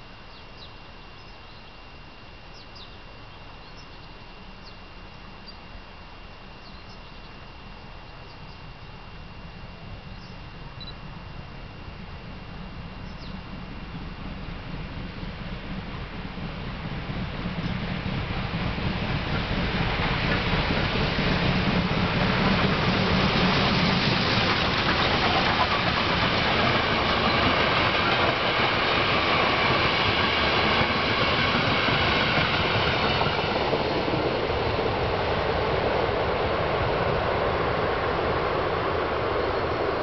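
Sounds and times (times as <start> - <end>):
train wheels rumbling on rails: 9.5 - 40.0.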